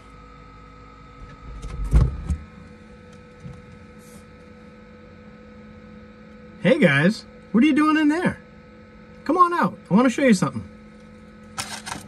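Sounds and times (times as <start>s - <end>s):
computer fans humming: 0.0s - 12.0s
thump: 1.6s - 2.4s.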